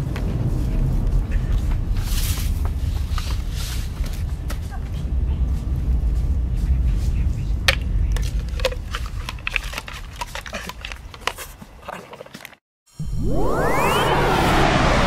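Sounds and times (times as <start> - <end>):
low steady rumble: 0.0 - 10.4
rising whoosh: 12.9 - 15.0.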